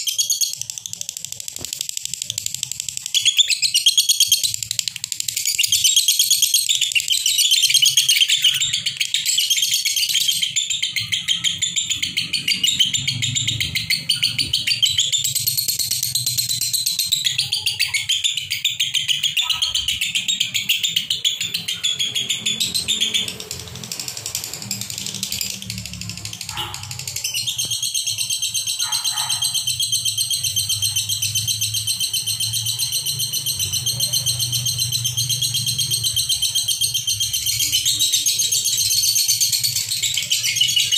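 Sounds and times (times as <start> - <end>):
lovebirds chattering shrilly: 2.3 - 40.9.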